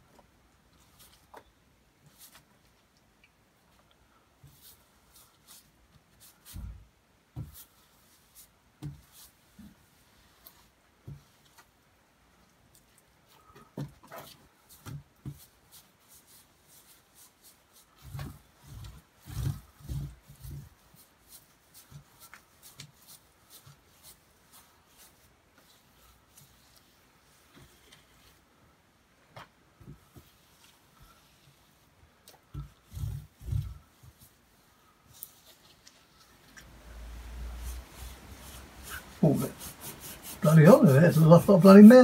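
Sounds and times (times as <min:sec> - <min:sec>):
hand brushing dirt off sign: 0:37.0 - 0:42.0.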